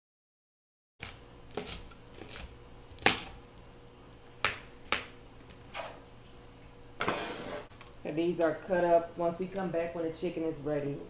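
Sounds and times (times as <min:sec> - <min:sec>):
knife chopping on a plastic board: 0:01.0 - 0:03.4, 0:04.4 - 0:05.1.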